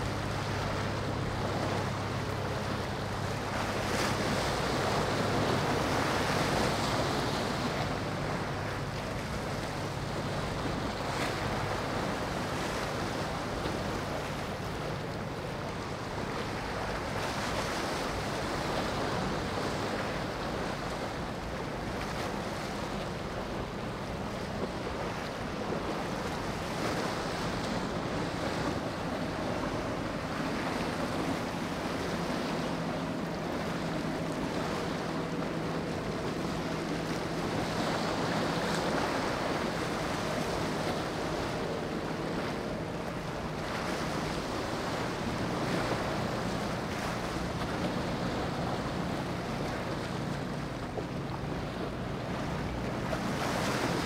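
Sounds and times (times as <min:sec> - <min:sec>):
faint motor hum: 0:00.0 - 0:54.0
surf washing against rocks: 0:00.0 - 0:54.0.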